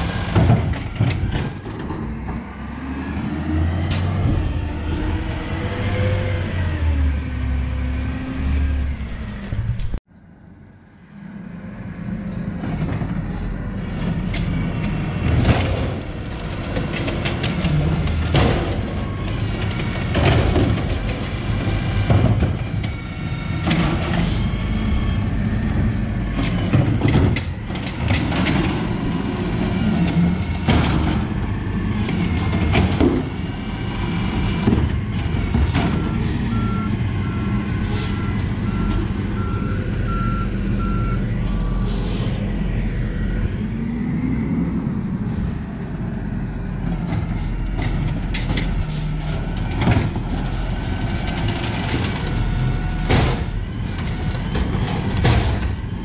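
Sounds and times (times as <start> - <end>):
garbage carts banging: 14.0 - 22.9, 25.2 - 36.4, 47.0 - 56.0
reversing beeps: 35.9 - 41.9.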